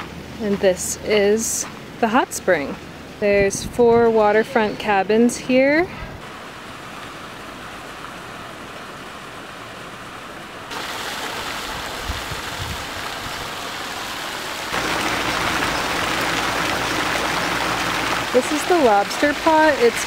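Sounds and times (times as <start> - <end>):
water pouring and splashing: 10.7 - 20.0.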